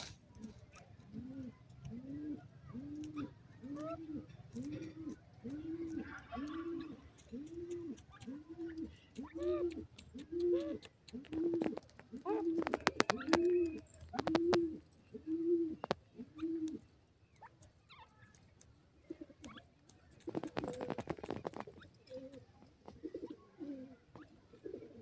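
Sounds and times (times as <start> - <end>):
light ticks: 4.5 - 14.7.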